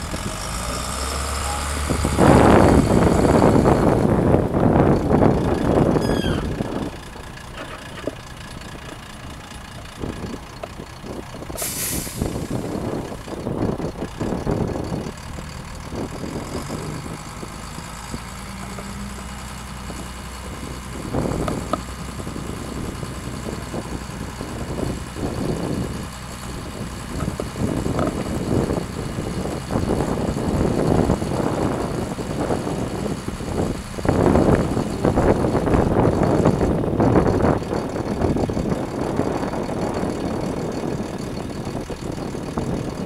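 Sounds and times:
diesel engine idling: 0:00.0 - 0:43.0
air hiss: 0:11.6 - 0:12.5.

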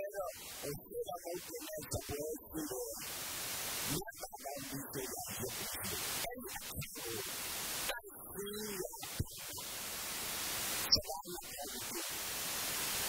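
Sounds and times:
man speaking: 0:00.0 - 0:03.0, 0:03.9 - 0:07.3, 0:07.9 - 0:09.7, 0:10.9 - 0:12.2
strong steady hiss: 0:00.0 - 0:13.0.

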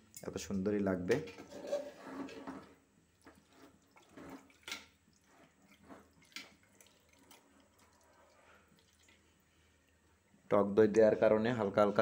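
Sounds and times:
spatula squelching in pot: 0:01.5 - 0:10.0.

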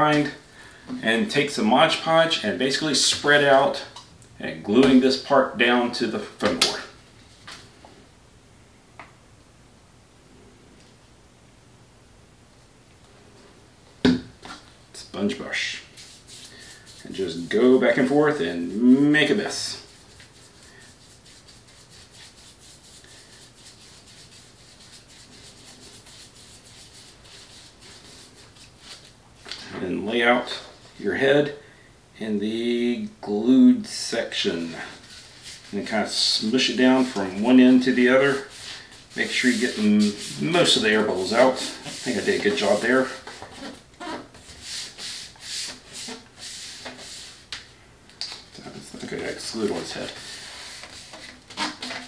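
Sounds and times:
dry swishing strokes on paper: 0:15.6 - 0:18.1, 0:19.3 - 0:29.1, 0:34.6 - 0:43.8, 0:44.4 - 0:47.5, 0:49.3 - 0:51.8
sponge brush scrubbing: 0:15.6 - 0:29.1, 0:34.6 - 0:47.5, 0:49.0 - 0:52.0.

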